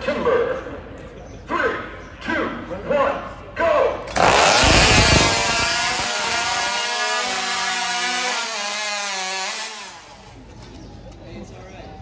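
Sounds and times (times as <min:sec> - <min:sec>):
chainsaw cutting log: 0:04.1 - 0:10.4.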